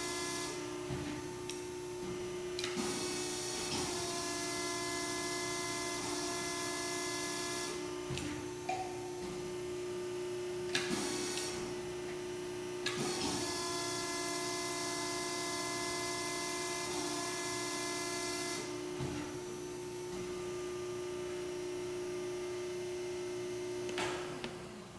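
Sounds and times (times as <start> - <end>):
hydraulic whine and hiss: 10.6 - 12.0.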